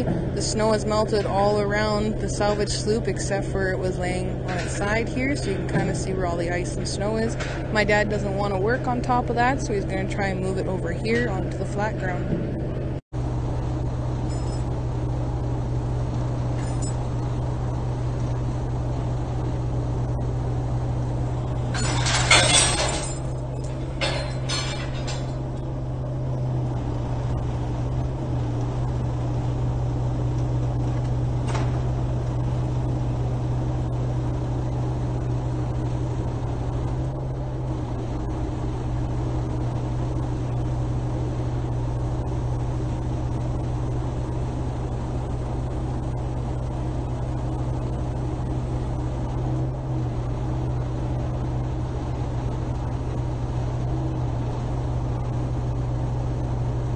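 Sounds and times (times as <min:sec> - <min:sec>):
truck engine running: 0:00.0 - 0:56.9
metal chain clanking: 0:14.3 - 0:14.6, 0:16.6 - 0:17.0, 0:21.6 - 0:25.7.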